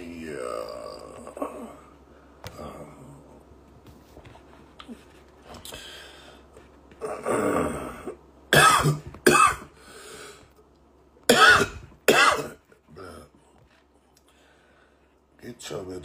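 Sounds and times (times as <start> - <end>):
man coughing: 8.5 - 9.7, 11.3 - 12.6
man clearing throat: 8.6 - 9.7, 11.3 - 12.6.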